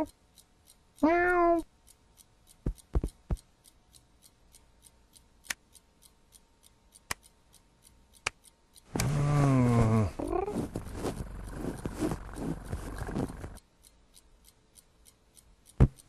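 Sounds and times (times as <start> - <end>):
fast steady ticking: 0.0 - 16.0
cat meow: 1.0 - 1.6
soft thumps and clicks: 2.6 - 3.4, 8.9 - 13.6, 15.7 - 16.0
low human groan: 9.0 - 10.6.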